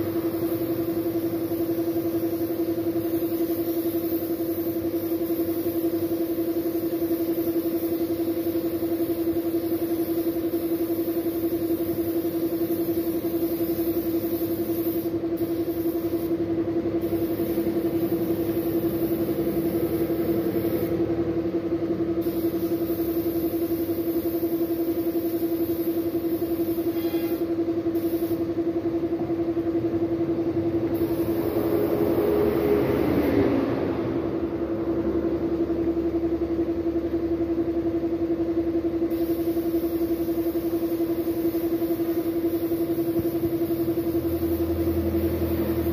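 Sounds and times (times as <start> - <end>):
paint spray gun hissing: 0.0 - 21.1, 22.2 - 28.6, 30.9 - 32.1, 39.1 - 45.9
air compressor humming: 0.0 - 45.9.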